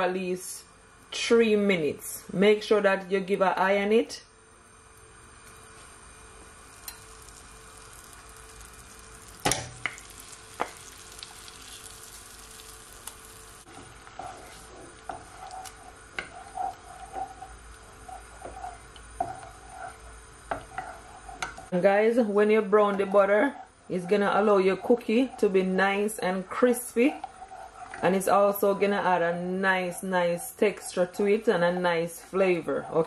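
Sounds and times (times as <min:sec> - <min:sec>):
butter sizzling in saucepan: 0:06.5 - 0:33.0
wooden spatula scraping pan: 0:13.7 - 0:33.0.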